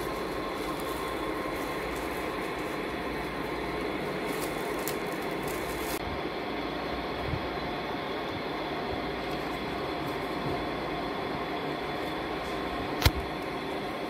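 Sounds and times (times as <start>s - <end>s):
plastic wrapping crinkling: 0.0s - 6.0s
steady background noise: 0.0s - 14.0s.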